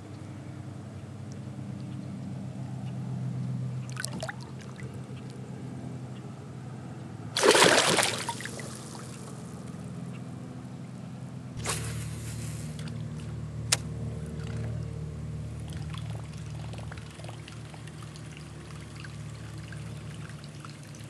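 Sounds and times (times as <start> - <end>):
low steady hum: 0.0 - 21.0
fish splashing in water: 3.9 - 5.0, 7.4 - 9.5, 15.6 - 21.0.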